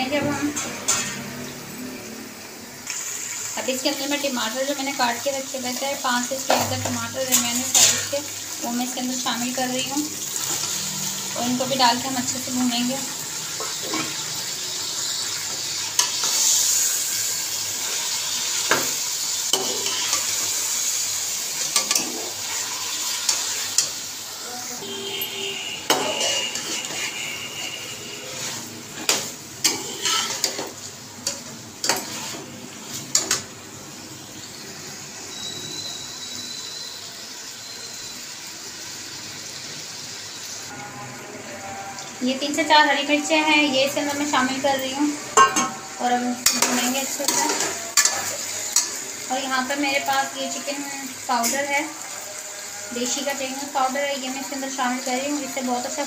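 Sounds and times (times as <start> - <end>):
frying oil sizzling: 0.0 - 56.0
metal spatula scraping pot: 6.5 - 8.3, 13.6 - 14.4, 19.5 - 20.6, 25.9 - 33.4, 45.4 - 49.1.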